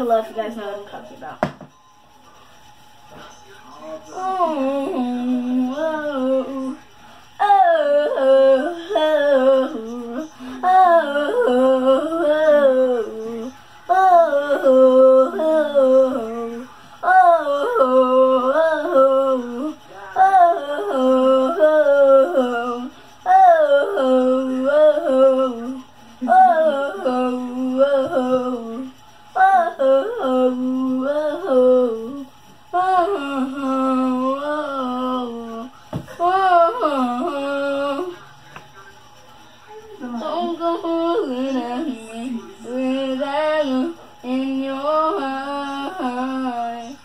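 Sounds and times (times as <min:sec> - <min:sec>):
person humming a tune: 0:07.4 - 0:38.2.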